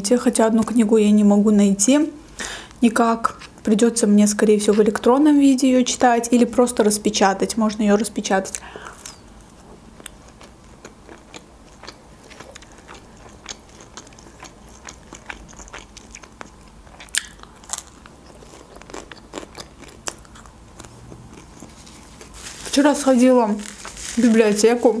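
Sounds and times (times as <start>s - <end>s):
biting and chewing food: 8.9s - 22.6s.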